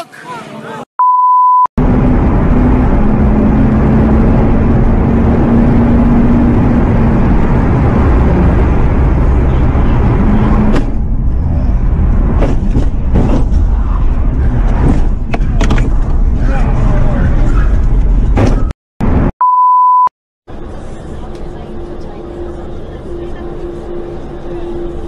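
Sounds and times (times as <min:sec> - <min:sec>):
test-tone beep: 0:01.0 - 0:01.7, 0:19.4 - 0:20.1
car engine running: 0:01.8 - 0:18.4
road and wind noise: 0:01.8 - 0:19.3, 0:20.5 - 0:25.0.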